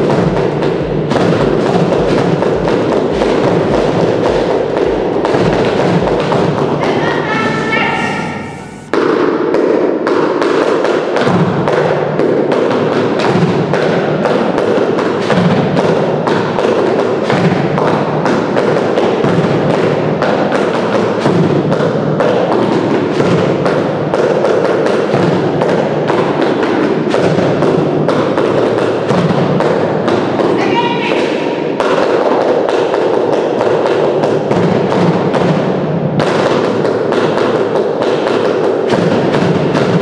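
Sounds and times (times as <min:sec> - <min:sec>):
large drum struck with mallet: 0:00.0 - 0:08.4
drums and boxes struck with sticks: 0:00.0 - 0:40.0.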